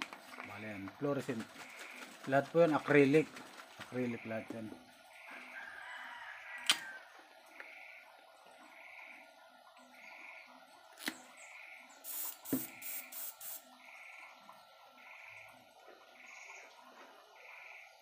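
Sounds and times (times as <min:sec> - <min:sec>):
airbrush spraying hiss: 0:12.0 - 0:13.6.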